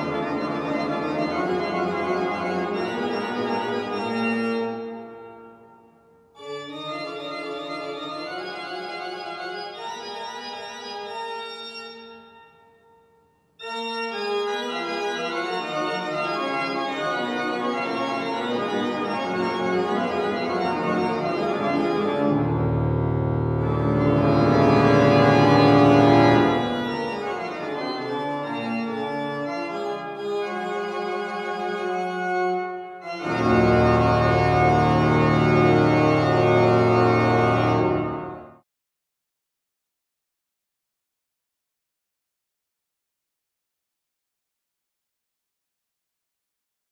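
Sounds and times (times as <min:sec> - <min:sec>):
organ playing: 0:00.0 - 0:12.9, 0:13.6 - 0:38.6.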